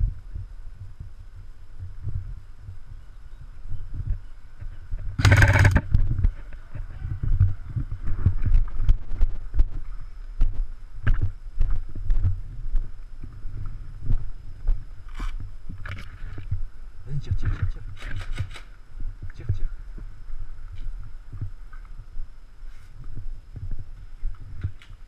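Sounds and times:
camera bumping and rubbing: 5.2 - 6.2.

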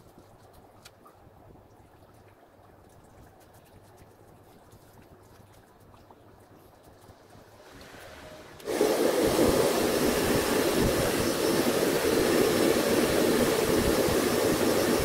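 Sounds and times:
hot-air blower running: 7.8 - 15.0.

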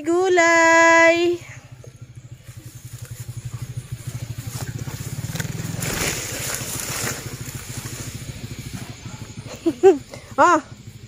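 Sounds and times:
small motorcycle engine running: 0.0 - 11.0
leaves rustling: 2.2 - 9.4.

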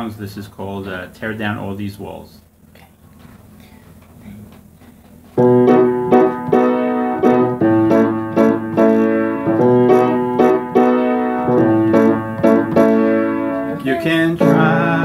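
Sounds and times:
piano chords: 5.4 - 15.0.

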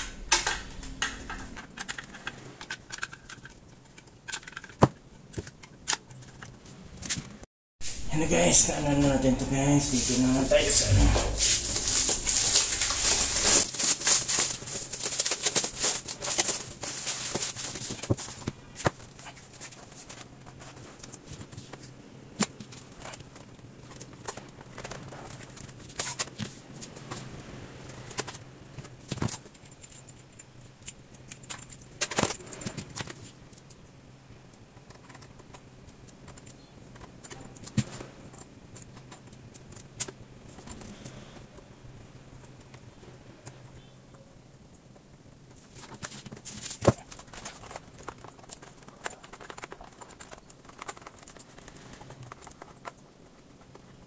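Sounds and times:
rustles clicks and knocks: 0.0 - 7.4, 45.5 - 54.0
plastic wrapping crinkling: 9.1 - 21.9, 45.6 - 54.0.

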